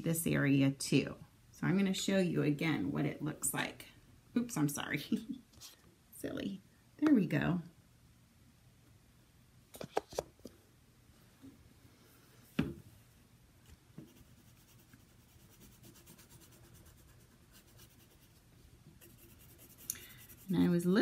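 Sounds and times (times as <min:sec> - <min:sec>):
pencil scratching on paper: 0:14.0 - 0:18.4, 0:19.0 - 0:21.0.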